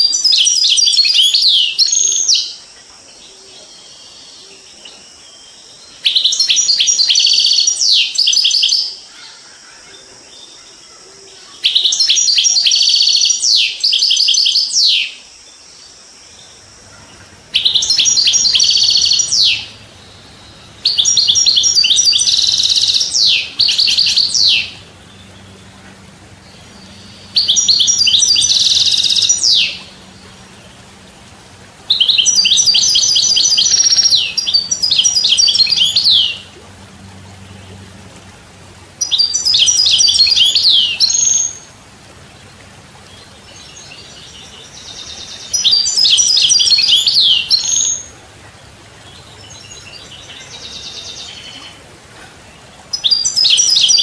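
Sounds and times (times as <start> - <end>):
goldfinch twittering song: 5.4 - 8.9, 11.6 - 15.2, 16.4 - 38.3, 39.0 - 48.2, 52.5 - 54.0.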